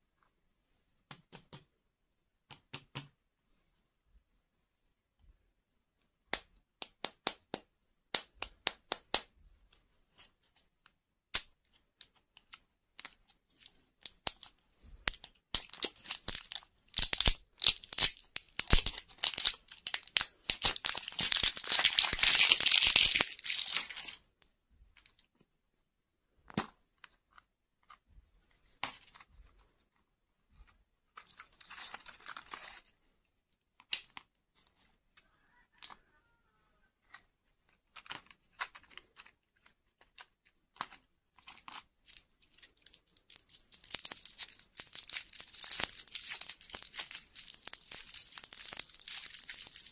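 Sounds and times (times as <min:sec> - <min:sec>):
plastic wrapper crinkling and tearing: 0:12.0 - 0:24.2, 0:31.3 - 0:32.9, 0:41.4 - 0:49.9.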